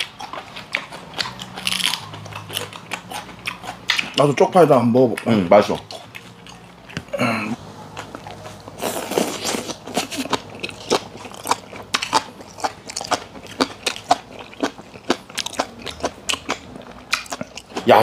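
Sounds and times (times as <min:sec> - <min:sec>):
man chewing crunchy food: 0:00.0 - 0:18.0.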